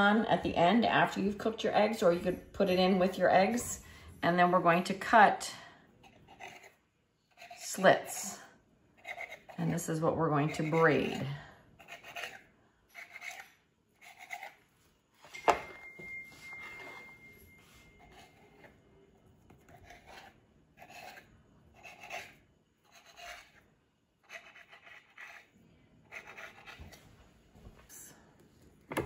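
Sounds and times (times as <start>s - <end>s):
knife scraping through dough: 6.0s - 8.4s, 9.0s - 15.3s, 16.4s - 27.0s.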